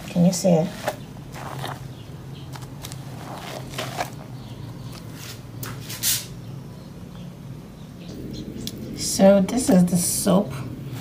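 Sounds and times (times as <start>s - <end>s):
soapy sponge squelching: 1.3s - 1.8s
low steady hum: 6.4s - 11.0s.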